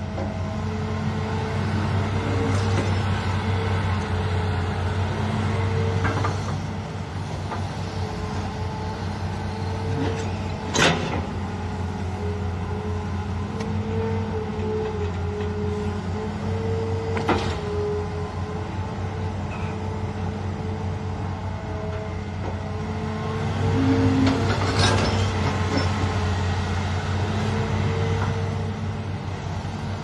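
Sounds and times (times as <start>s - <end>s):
excavator diesel engine running: 0.0s - 30.0s
hydraulics whining: 0.0s - 30.0s.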